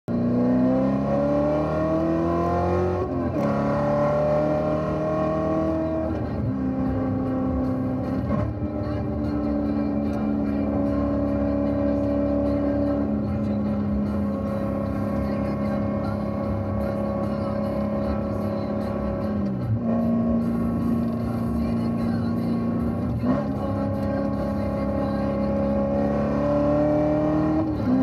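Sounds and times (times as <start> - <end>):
car engine accelerating: 0.1 - 28.0.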